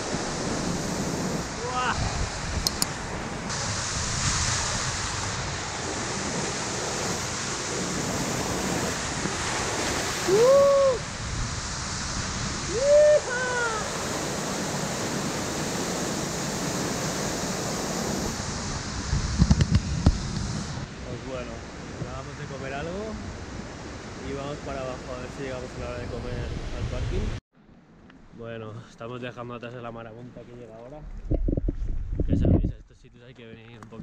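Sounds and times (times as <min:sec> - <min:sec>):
waterfall rushing: 0:00.0 - 0:18.7
man whooping: 0:10.2 - 0:11.1, 0:12.7 - 0:14.1.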